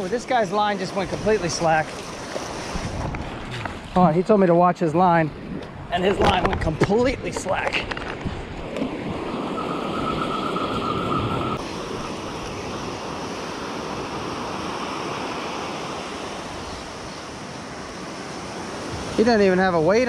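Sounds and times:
ocean surf rushing: 0.0 - 4.0, 8.4 - 20.0
wind buffeting microphone: 2.5 - 4.0, 5.0 - 15.1.

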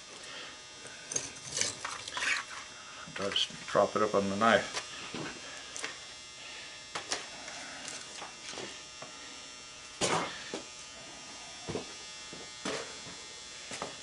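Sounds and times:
steady electric hum: 0.0 - 14.0.

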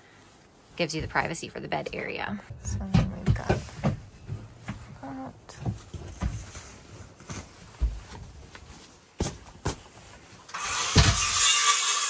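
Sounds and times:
curtain fabric rustling: 5.8 - 9.2.

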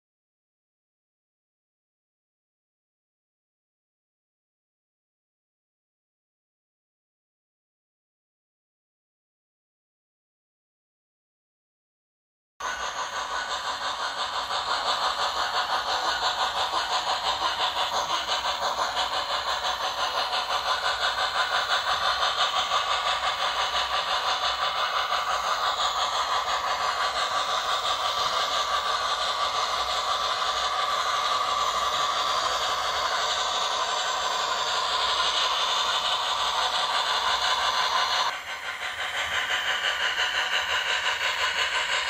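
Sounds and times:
model train steam chuffs: 12.6 - 42.0.

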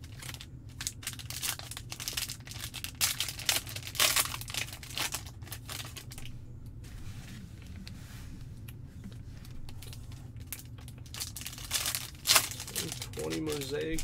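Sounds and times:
plastic wrapper tearing and crinkling: 0.0 - 6.3, 9.4 - 14.0.

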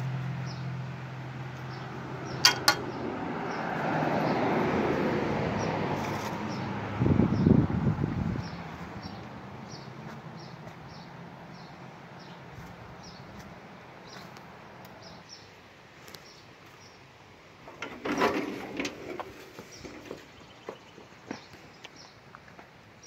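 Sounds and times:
rustling and knocking: 2.4 - 2.9.

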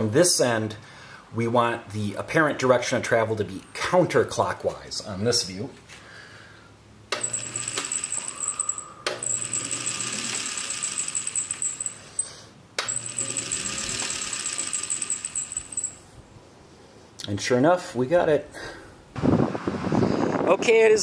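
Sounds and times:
electric motor high whine: 7.2 - 12.0, 12.8 - 16.0.

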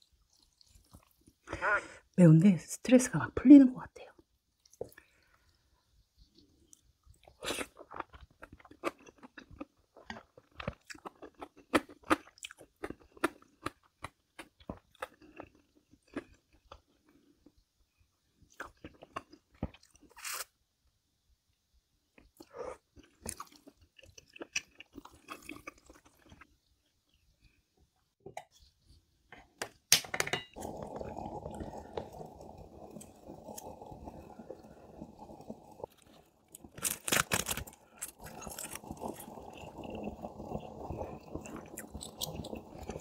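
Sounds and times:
person chewing crunchy food: 0.0 - 1.5, 6.2 - 17.6, 18.4 - 20.6, 22.2 - 27.6, 30.6 - 43.0.

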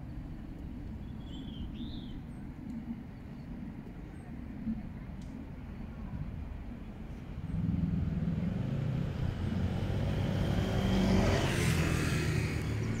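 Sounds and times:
vehicle passing by: 7.2 - 13.0.

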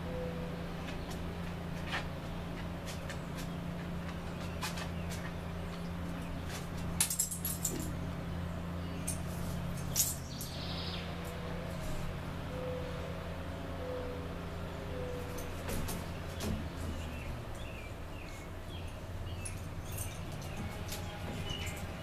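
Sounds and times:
steady low hum: 0.0 - 22.0
dog claws clicking on metal chair: 18.9 - 22.0.

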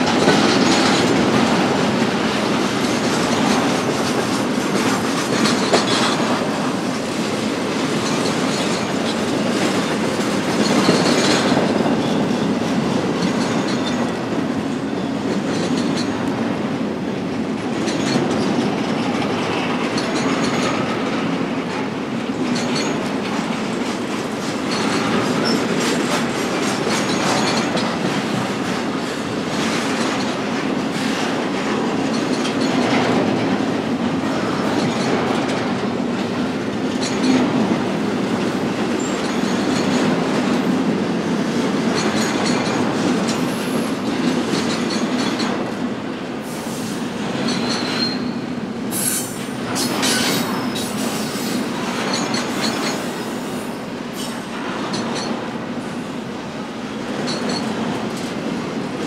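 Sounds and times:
train wheels rumbling on rail: 0.0 - 59.0
high wheel squeal: 46.5 - 51.6.

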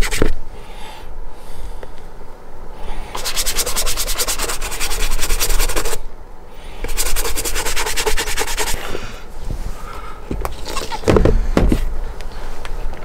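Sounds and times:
brush scrubbing leather boot: 3.2 - 6.0, 6.9 - 8.8.

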